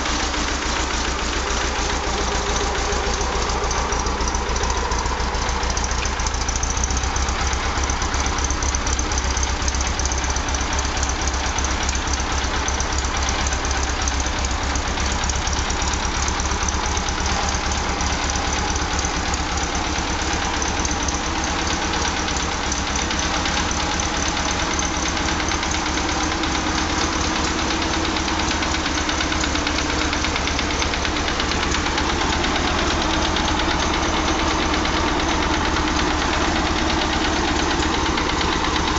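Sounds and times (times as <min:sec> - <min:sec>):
tractor engine running steadily: 0:00.0 - 0:38.9.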